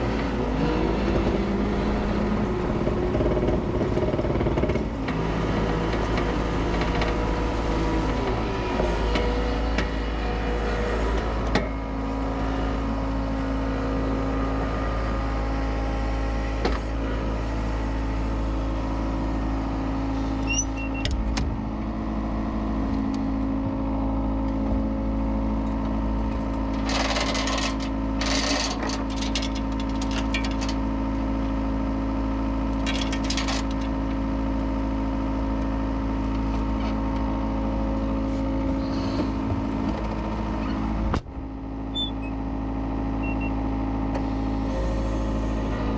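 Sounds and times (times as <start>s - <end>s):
diesel engine running: 0.0s - 45.9s.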